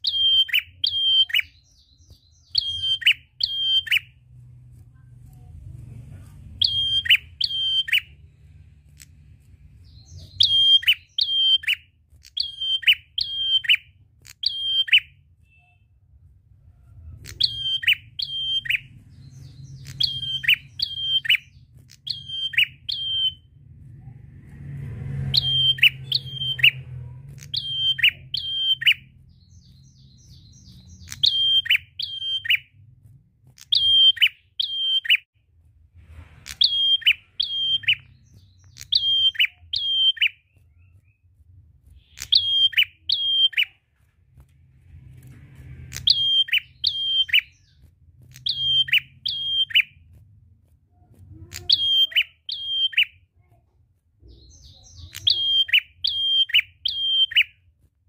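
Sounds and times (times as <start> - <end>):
bird singing sharp notes: 0.0 - 4.2, 6.6 - 8.2, 9.8 - 16.0, 17.2 - 23.5, 25.1 - 32.8, 33.6 - 35.3, 36.4 - 41.2, 42.0 - 43.8, 45.7 - 50.0, 51.4 - 53.2, 54.2 - 57.6.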